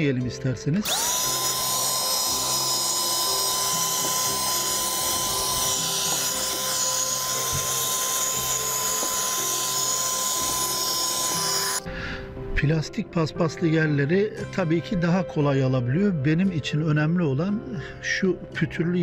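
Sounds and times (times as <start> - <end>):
handheld vacuum running: 0.8 - 11.9.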